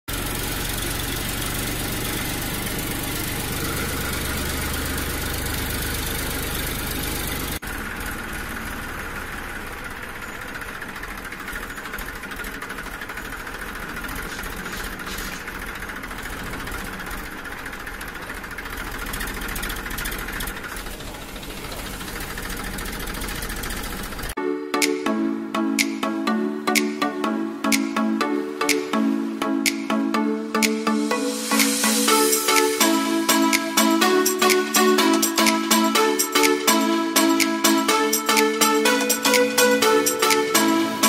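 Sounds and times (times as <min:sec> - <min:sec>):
motor running steadily: 0:00.1 - 0:24.3.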